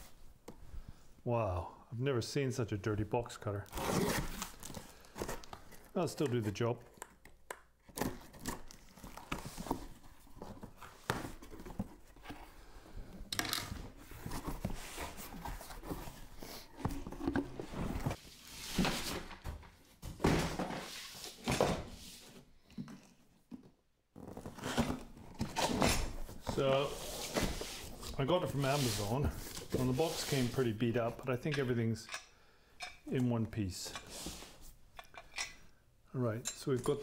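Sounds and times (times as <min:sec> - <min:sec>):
cardboard and packing rustling: 0:03.6 - 0:07.0, 0:07.8 - 0:31.2.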